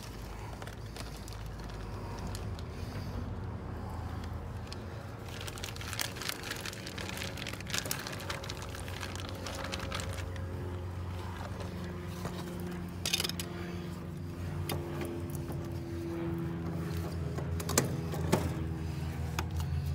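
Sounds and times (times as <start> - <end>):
plastic bag crinkling: 0.0 - 2.6, 4.8 - 11.4
low motor hum: 0.0 - 19.9.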